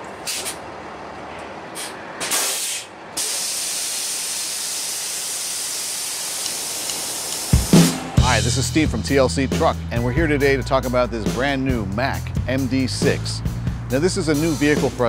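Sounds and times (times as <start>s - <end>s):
steady hiss: 1.8s - 8.2s.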